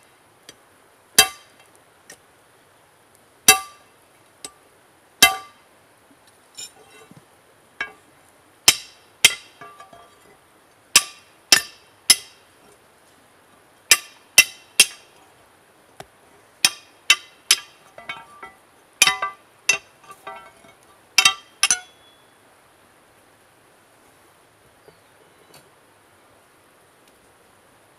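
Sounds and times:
hammer clinking on steel bar: 0:16.6 - 0:20.6, 0:21.2 - 0:22.1.

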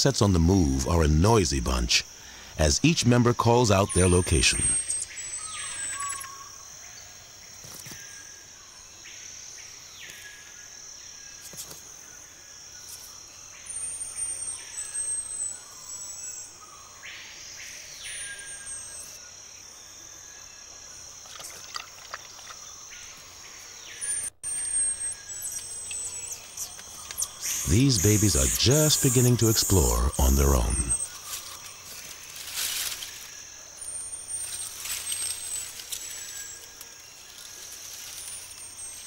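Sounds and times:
insects droning: 0:00.0 - 0:39.0
marmosets whistling calls: 0:03.8 - 0:06.6, 0:24.0 - 0:32.0.

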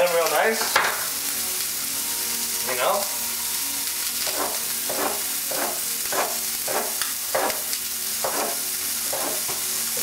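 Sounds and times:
meat sizzling in a frying pan: 0:00.0 - 0:10.0
knife slicing on wooden board: 0:04.3 - 0:07.6.

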